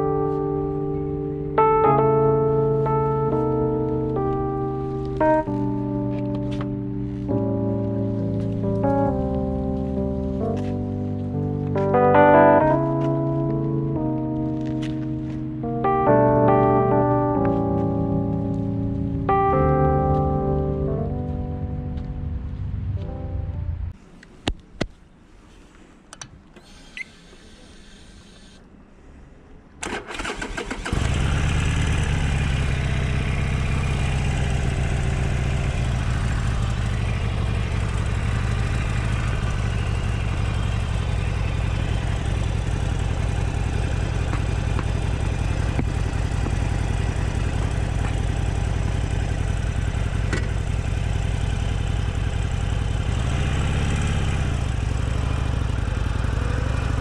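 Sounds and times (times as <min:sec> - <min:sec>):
motorcycle electric starter cranking: 0:29.8 - 0:31.6
motorcycle engine idling: 0:30.9 - 0:57.0.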